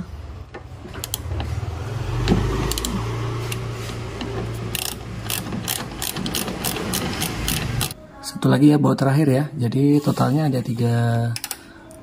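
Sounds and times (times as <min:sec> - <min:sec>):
ratchet wrench clicking: 0:04.6 - 0:08.0.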